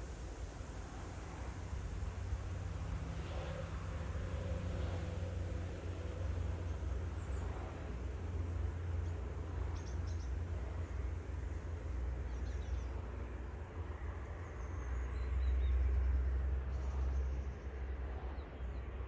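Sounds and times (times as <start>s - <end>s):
steady hiss: 0.0s - 13.8s.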